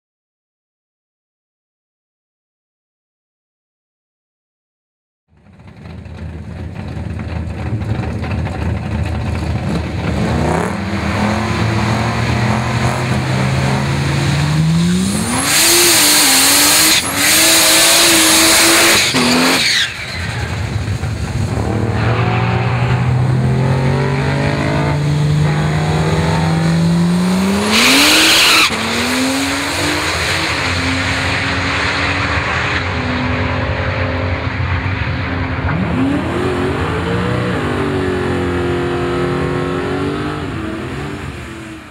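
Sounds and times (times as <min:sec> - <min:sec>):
car engine revving: 0:05.4 - 0:41.9
tyres squealing in a burnout: 0:13.8 - 0:20.8, 0:27.3 - 0:32.8.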